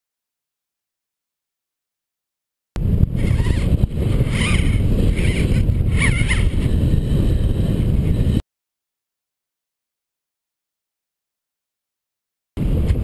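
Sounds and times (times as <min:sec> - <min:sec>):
wind buffeting microphone: 0:02.8 - 0:08.4, 0:12.6 - 0:13.0.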